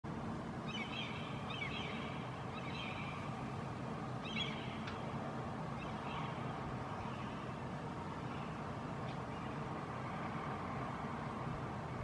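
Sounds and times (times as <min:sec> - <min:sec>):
low background rumble: 0:00.1 - 0:12.0
gulls calling: 0:00.6 - 0:03.6, 0:04.2 - 0:08.6.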